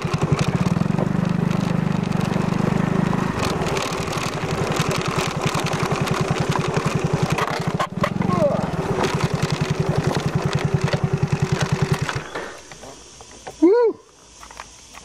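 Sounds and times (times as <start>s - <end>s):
scooter engine running: 0.0s - 12.8s.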